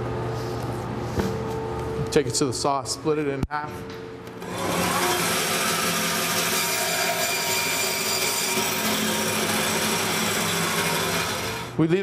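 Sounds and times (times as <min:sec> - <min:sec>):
meat band saw cutting: 0:04.4 - 0:11.8.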